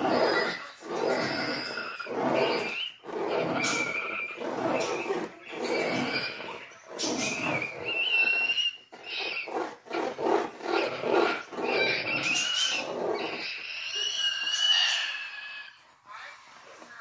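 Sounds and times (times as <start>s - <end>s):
thin high squeal: 10.8s - 15.8s.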